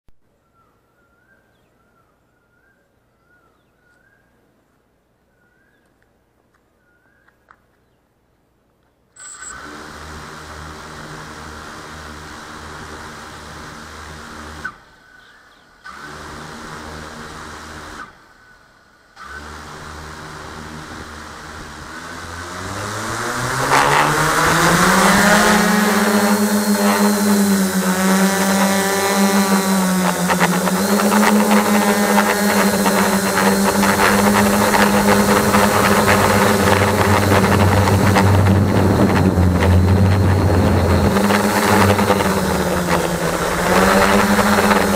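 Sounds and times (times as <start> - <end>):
drone propeller whine: 9.2 - 15.0, 16.0 - 44.9
drone propellers humming: 9.3 - 15.0, 19.2 - 44.9.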